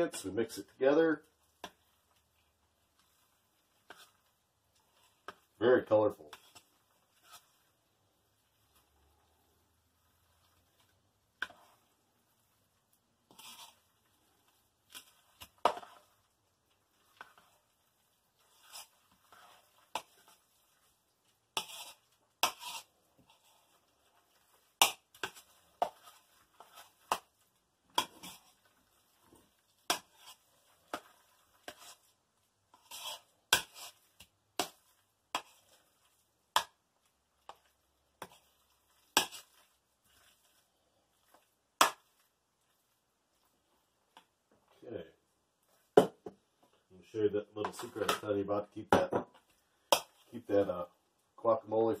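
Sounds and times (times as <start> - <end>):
wet squelches of mixing: 0.0 - 48.3, 49.4 - 52.0.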